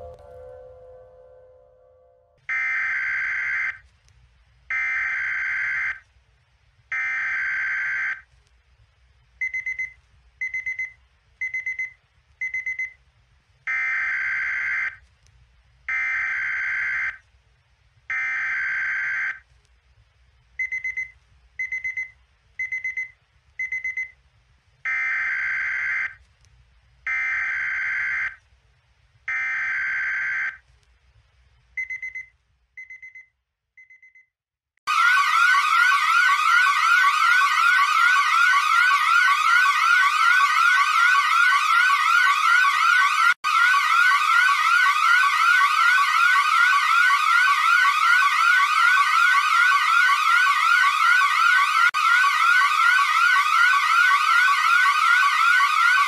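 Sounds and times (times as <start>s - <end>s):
long electronic alarm tones: 34.9s - 56.0s.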